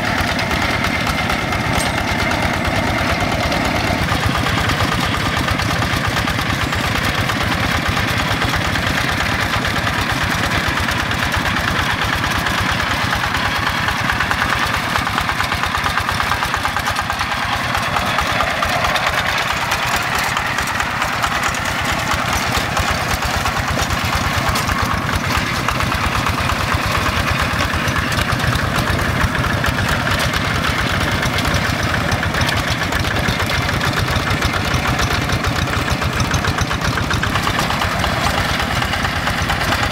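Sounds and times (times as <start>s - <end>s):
diesel engine chugging: 0.0s - 39.9s.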